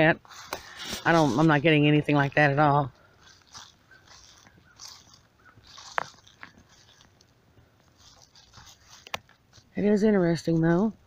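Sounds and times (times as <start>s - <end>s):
footsteps crunching dry leaves: 0.0s - 11.0s.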